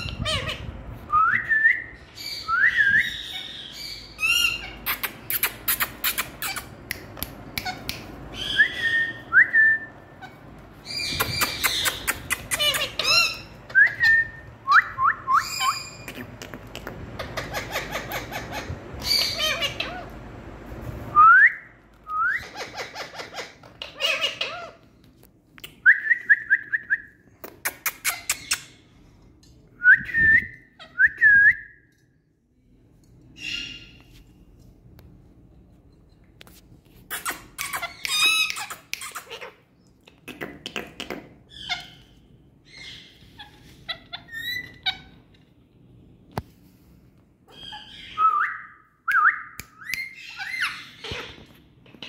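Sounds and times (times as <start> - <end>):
parakeets squawking: 0.0 - 0.8, 2.2 - 9.3, 10.0 - 14.4, 15.4 - 20.3, 22.4 - 24.9, 37.1 - 39.8, 41.1 - 45.3, 47.5 - 48.4, 49.9 - 52.0
parakeets whistling: 1.3 - 6.8, 7.6 - 16.1, 17.2 - 20.1, 47.5 - 51.5.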